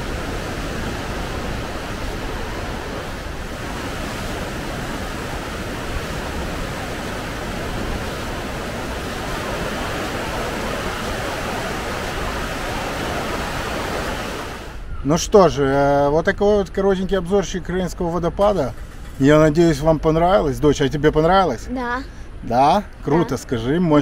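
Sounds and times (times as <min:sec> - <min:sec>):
waterfall and rapids rushing: 0:00.0 - 0:14.8.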